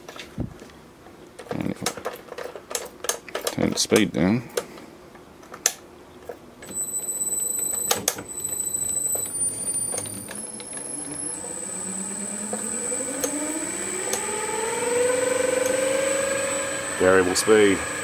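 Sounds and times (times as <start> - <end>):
electronic drive whine: 6.6 - 18.0
lathe motor whine rising: 6.6 - 18.0.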